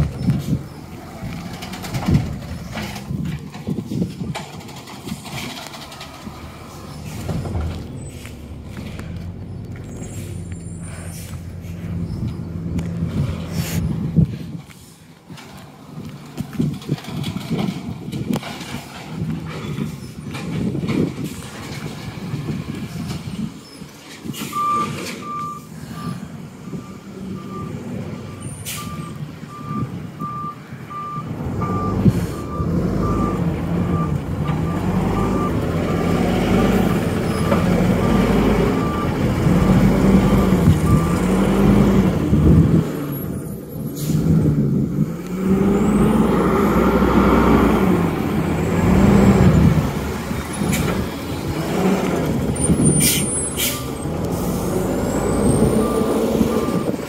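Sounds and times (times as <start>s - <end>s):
garbage truck engine: 0.0s - 57.0s
back-up alarm beeps: 24.5s - 36.2s.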